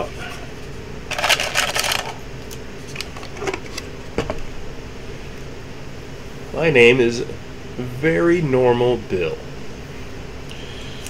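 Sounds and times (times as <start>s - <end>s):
low steady hum: 0.0s - 11.0s
paper card rustling: 1.1s - 2.2s.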